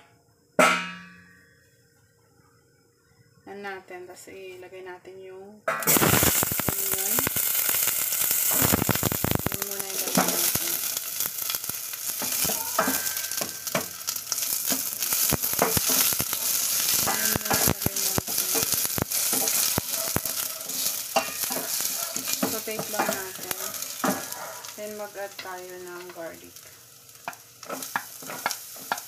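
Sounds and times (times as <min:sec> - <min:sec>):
onion sizzling in a pot: 0:05.6 - 0:29.0
wooden spatula tapping a pot: 0:12.2 - 0:13.9, 0:17.0 - 0:20.4, 0:27.2 - 0:29.0.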